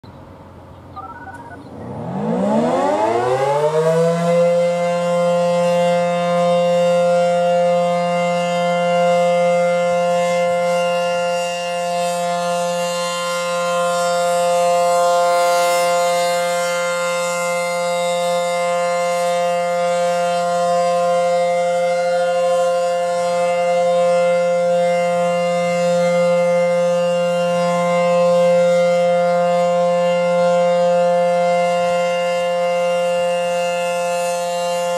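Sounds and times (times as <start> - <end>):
rotating siren winding up: 1.0 - 3.2.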